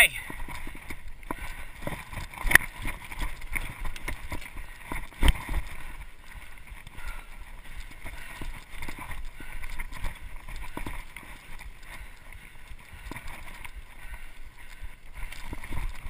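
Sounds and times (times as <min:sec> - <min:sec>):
bike tyres on dirt trail: 0:00.0 - 0:16.0.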